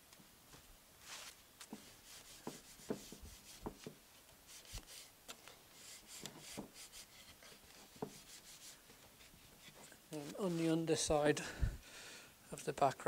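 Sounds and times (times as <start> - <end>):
cloth rubbing wood: 1.0 - 5.1, 5.8 - 11.1.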